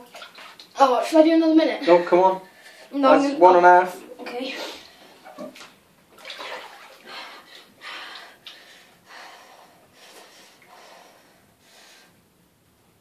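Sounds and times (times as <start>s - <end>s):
bath water sloshing: 0.0s - 2.0s, 4.2s - 9.1s
person breathing hissing breaths: 7.0s - 12.2s.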